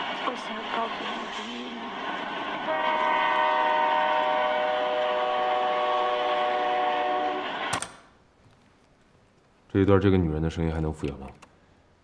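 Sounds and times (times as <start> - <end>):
train horn chord: 2.6 - 7.7
cassette tape hiss: 7.4 - 12.0.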